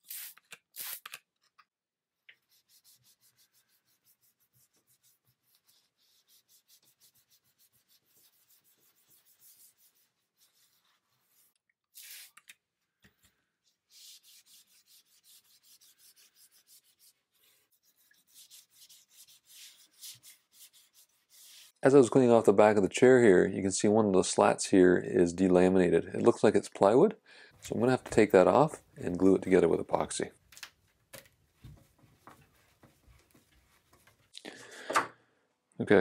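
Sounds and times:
spray bottle squirting: 0:00.0 - 0:01.2, 0:11.9 - 0:12.5
cloth rubbing on wood: 0:02.4 - 0:11.6, 0:13.8 - 0:21.8.

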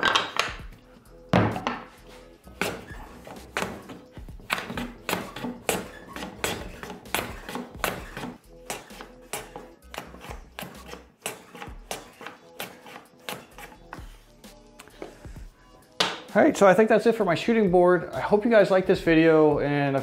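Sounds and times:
background music: 0:00.0 - 0:20.0
hand plane cutting strokes: 0:01.8 - 0:15.2.

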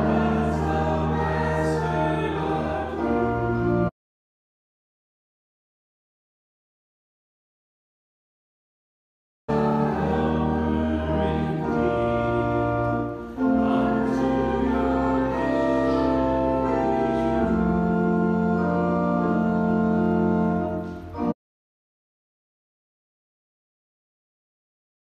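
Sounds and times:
organ playing slow chords: 0:00.0 - 0:03.9, 0:09.5 - 0:21.4.

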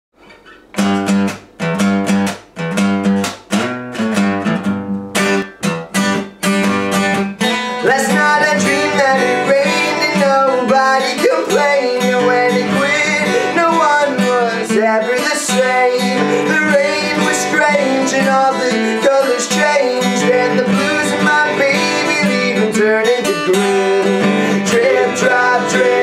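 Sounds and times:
acoustic guitar chords: 0:00.2 - 0:26.0
man singing: 0:07.7 - 0:26.0.

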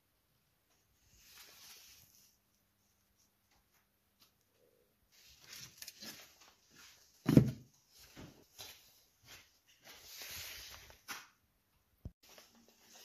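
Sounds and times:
knocks and rustles: 0:07.2 - 0:08.8.

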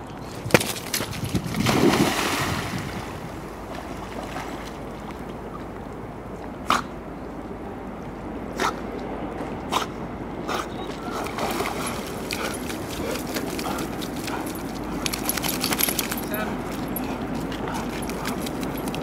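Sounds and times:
water sloshing: 0:00.4 - 0:05.5, 0:10.9 - 0:19.0
dog splashing into river: 0:00.6 - 0:04.8, 0:11.1 - 0:14.0.

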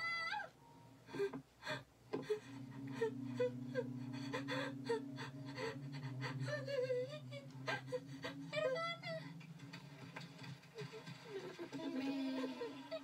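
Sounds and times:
person gasping and sobbing: 0:01.1 - 0:09.2
low steady drone: 0:01.2 - 0:10.8.

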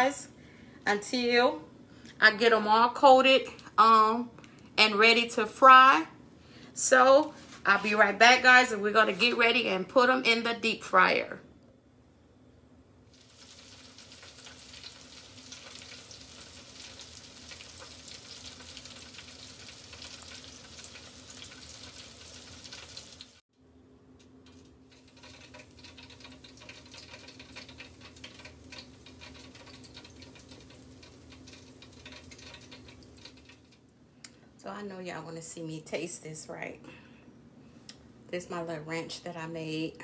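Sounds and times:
oil sizzling in deep fryer: 0:13.1 - 0:23.4, 0:24.4 - 0:33.8.

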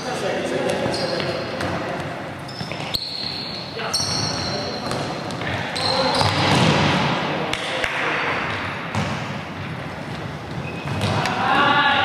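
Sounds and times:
ball kicked and bouncing: 0:10.1 - 0:11.3.

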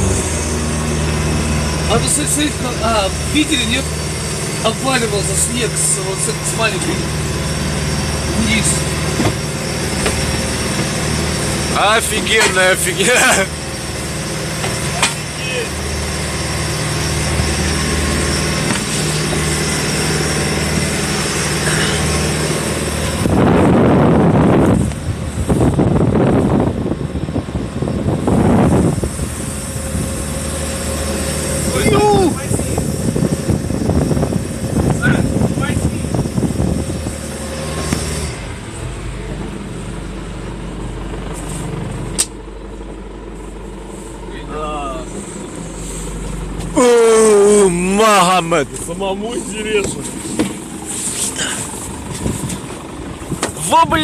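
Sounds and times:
motorboat engine running: 0:00.0 - 0:54.0
wind buffeting microphone: 0:17.0 - 0:42.1, 0:51.6 - 0:54.0.

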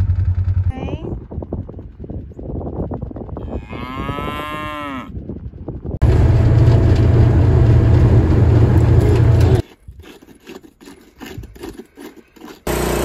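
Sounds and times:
utility vehicle rumble: 0:00.0 - 0:03.1, 0:05.3 - 0:09.6
cow mooing: 0:03.4 - 0:05.2.

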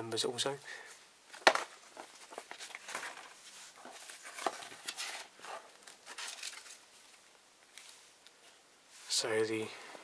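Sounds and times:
paper rustling and crinkling: 0:01.3 - 0:08.0.

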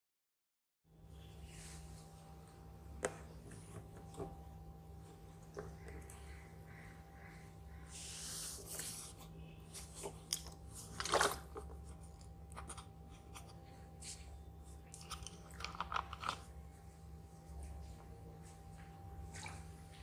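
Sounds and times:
plastic bottle crinkling: 0:09.8 - 0:12.8.

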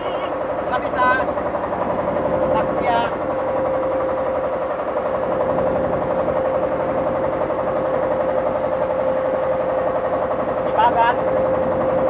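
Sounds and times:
boat engine chugging: 0:00.0 - 0:12.0.

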